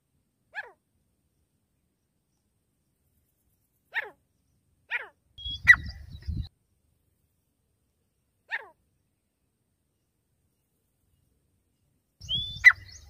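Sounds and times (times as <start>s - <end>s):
sharp animal calls: 3.9s - 4.2s, 4.9s - 6.1s, 8.5s - 8.8s.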